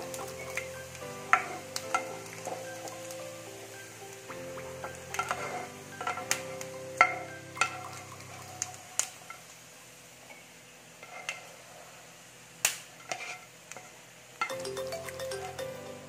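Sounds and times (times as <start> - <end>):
spatula knocking and scraping pan: 0.0 - 3.2, 4.4 - 8.7
soft background music: 0.0 - 9.2, 14.5 - 16.0.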